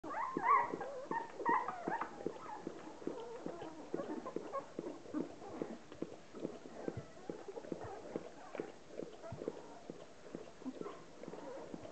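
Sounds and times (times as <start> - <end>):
dog licking puppies: 0.0 - 11.9
puppies squeaking and whimpering: 0.1 - 5.8.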